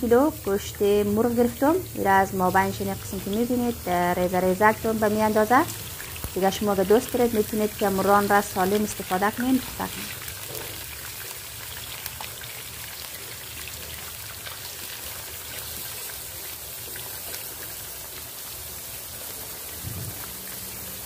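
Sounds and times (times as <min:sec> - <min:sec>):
chicken frying in hot oil: 0:00.0 - 0:21.0.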